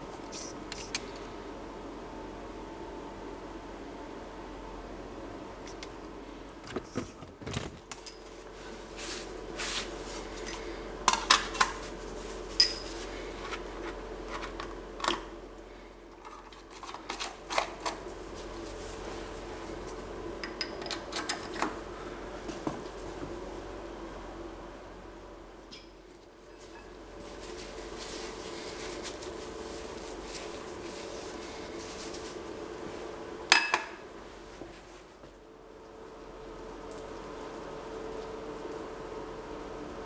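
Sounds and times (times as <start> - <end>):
steady hum: 0.0 - 40.0.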